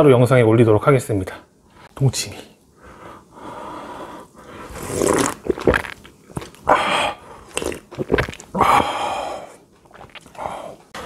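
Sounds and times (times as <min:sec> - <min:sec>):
slurping broth from a bowl: 0:04.7 - 0:06.6, 0:07.4 - 0:08.5
chewing: 0:07.4 - 0:08.6, 0:09.8 - 0:10.4.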